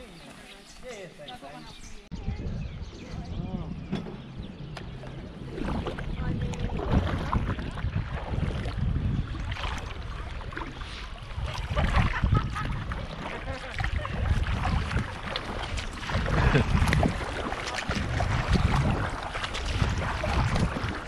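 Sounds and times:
wind rumbling on microphone: 0.0 - 21.0
kayak paddles splashing in water: 4.7 - 21.0.

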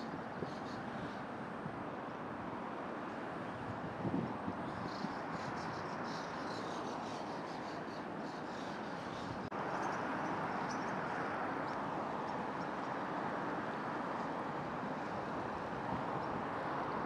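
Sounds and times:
starlings chirping: 4.6 - 11.0.

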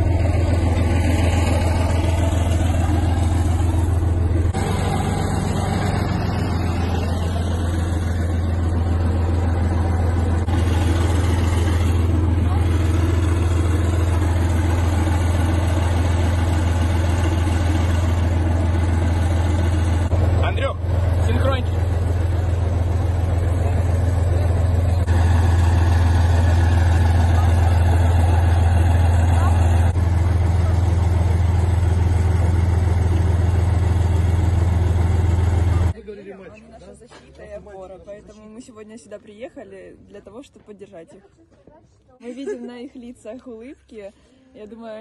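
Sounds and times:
tank engine idling: 0.0 - 36.0.

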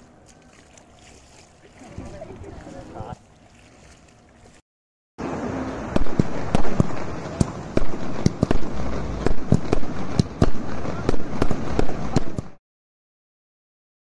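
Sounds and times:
fireworks bangs: 5.9 - 12.6.

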